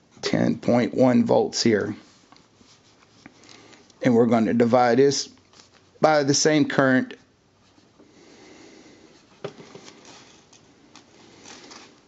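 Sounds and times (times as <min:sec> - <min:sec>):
faint breathing: 0:03.2 - 0:04.0, 0:08.0 - 0:12.0.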